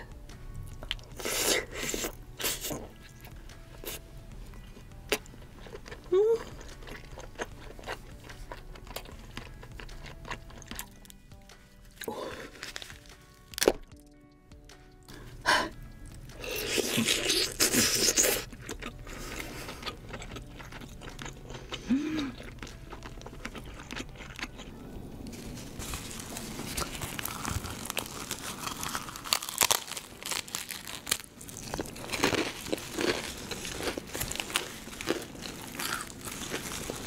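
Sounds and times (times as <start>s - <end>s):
soft background music: 0.0s - 37.0s
crab shell cracking: 12.0s - 14.1s, 26.7s - 37.0s.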